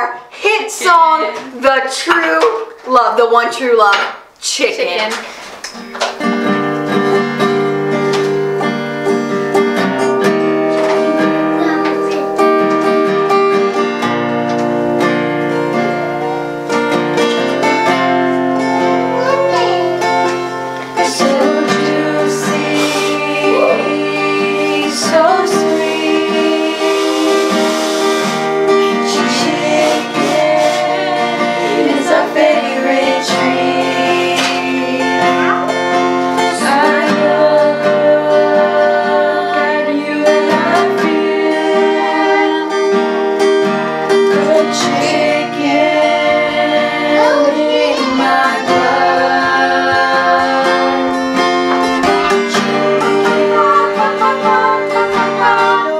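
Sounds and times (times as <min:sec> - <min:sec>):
acoustic guitar: 0:00.0 - 0:55.9
girls singing together: 0:17.6 - 0:43.2, 0:44.3 - 0:55.9.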